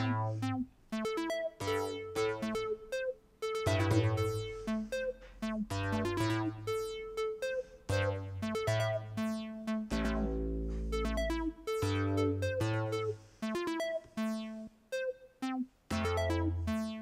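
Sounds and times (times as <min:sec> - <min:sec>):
synth bass notes: 0:00.0 - 0:14.7, 0:15.4 - 0:17.0
low synth chord: 0:09.9 - 0:13.0.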